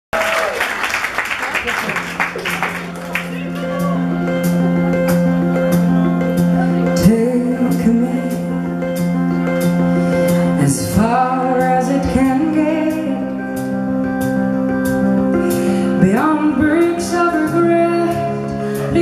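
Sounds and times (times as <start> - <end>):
held band chords: 2.0 - 19.0
woman singing into microphone: 6.9 - 8.6, 10.6 - 13.5, 16.0 - 19.0.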